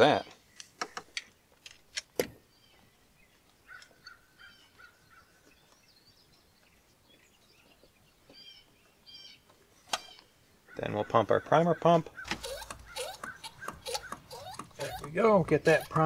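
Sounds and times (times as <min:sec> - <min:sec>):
birds chirping: 0:02.4 - 0:16.0
metal fittings clicking: 0:12.3 - 0:16.0.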